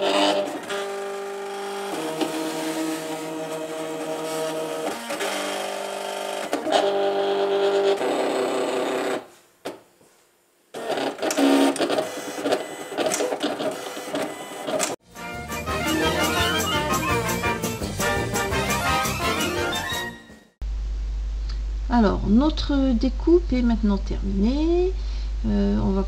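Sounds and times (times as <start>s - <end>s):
cutting machine motors whining: 0.0s - 9.2s, 10.8s - 15.0s.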